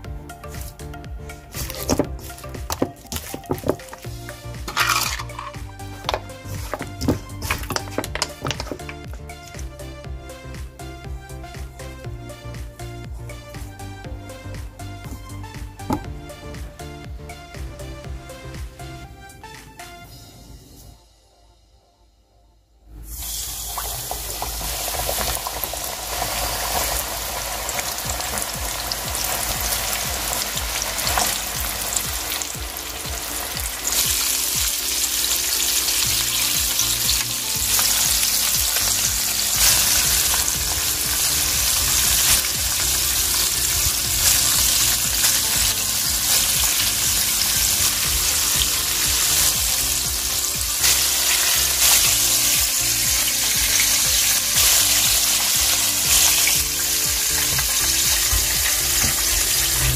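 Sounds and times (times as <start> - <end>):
chicken deep-frying in oil: 23.1 - 59.9.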